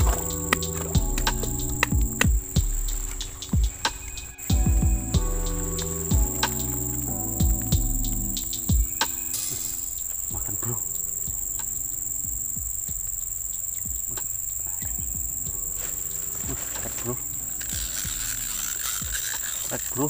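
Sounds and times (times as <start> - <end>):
high-pitched insect chirring: 0.0 - 20.0
faint clicks and rustles: 11.6 - 20.0.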